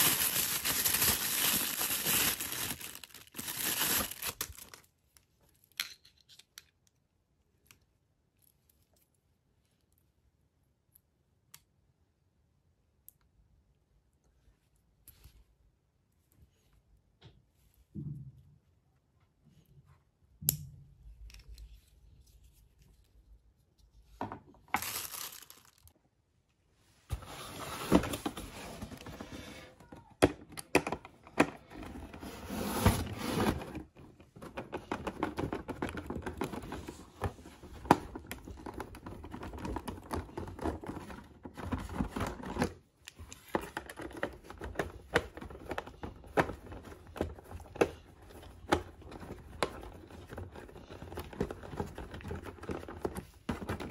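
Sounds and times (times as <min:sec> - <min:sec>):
click: 0:10.9 - 0:11.7, 0:13.0 - 0:13.3
cardboard scraping and rustling: 0:27.1 - 0:29.8, 0:31.6 - 0:42.6.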